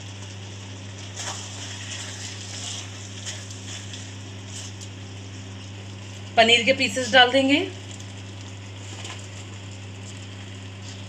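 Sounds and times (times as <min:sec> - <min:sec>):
steady low hum: 0:00.0 - 0:11.0
spatula scraping a metal pan: 0:01.2 - 0:04.8.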